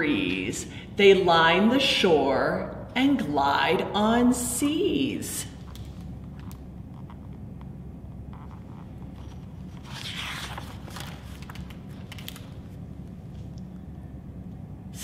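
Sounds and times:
low room hum: 0.0s - 15.0s
book pages turning: 8.3s - 13.6s.

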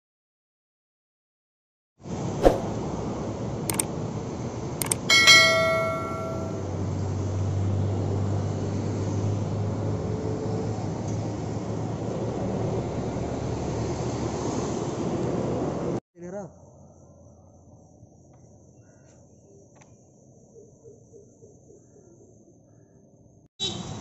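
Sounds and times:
bright bell chime: 5.1s - 6.8s.

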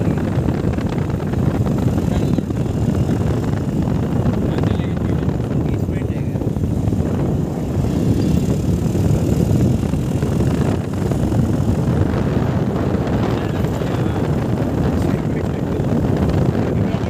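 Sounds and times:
motorbike engine: 0.0s - 17.0s
road noise: 0.0s - 17.0s
wind on microphone: 0.0s - 17.0s.

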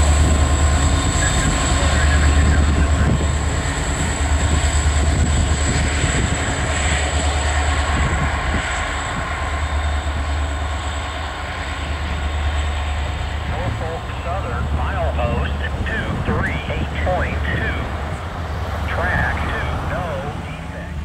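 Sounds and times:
locomotive engine drone: 0.0s - 21.0s.

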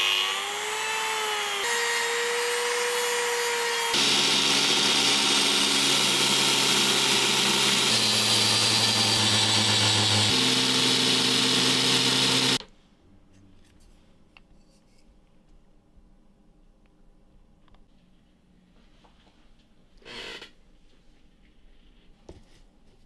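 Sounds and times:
belt grinder sanding: 0.0s - 12.6s.

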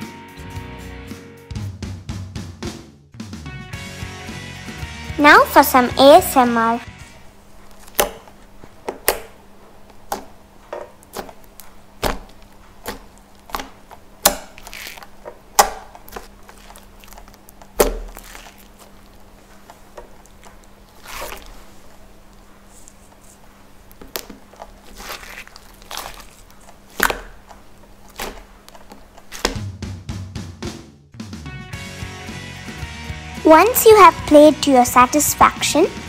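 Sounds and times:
slime squelching: 7.7s - 29.6s
slime clicking and popping: 7.8s - 8.3s, 11.0s - 19.2s, 24.0s - 29.6s.

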